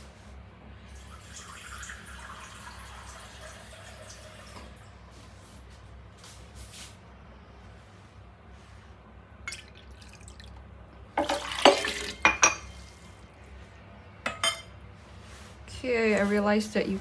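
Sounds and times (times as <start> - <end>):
water pouring into blender jar: 1.0 - 4.5, 11.2 - 12.2.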